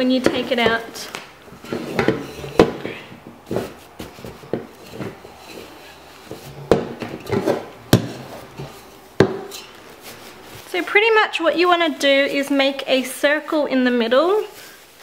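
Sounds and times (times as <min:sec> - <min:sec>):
nappies rustling: 0:00.0 - 0:15.0
sharp knocks against metal pot: 0:06.6 - 0:09.6.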